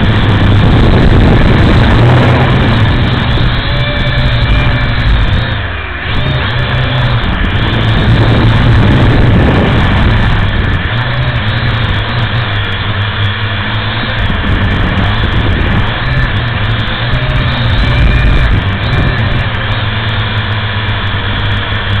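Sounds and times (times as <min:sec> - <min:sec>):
drone motors and propellers: 0:00.0 - 0:22.0.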